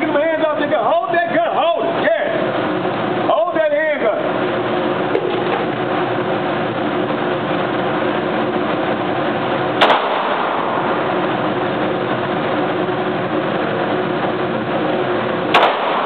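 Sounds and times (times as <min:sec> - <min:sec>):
loud droning hum: 0:00.0 - 0:16.0
pistol shot: 0:09.8 - 0:10.9, 0:15.5 - 0:16.0.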